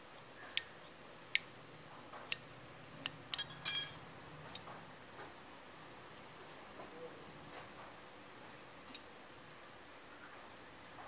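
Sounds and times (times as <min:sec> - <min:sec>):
metal lid clinking: 0:03.4 - 0:04.0.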